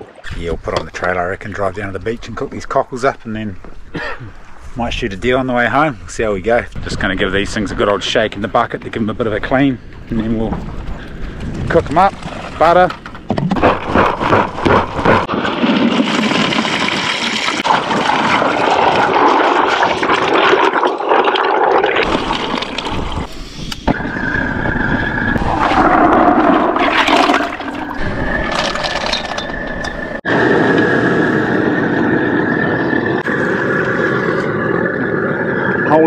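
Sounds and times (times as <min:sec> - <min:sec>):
water sloshing in bucket: 0:11.8 - 0:23.3.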